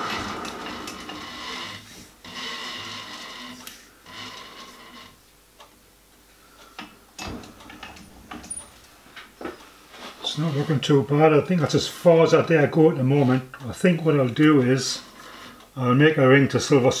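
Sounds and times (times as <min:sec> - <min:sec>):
metal lathe coasting to a stop: 0:00.0 - 0:01.7.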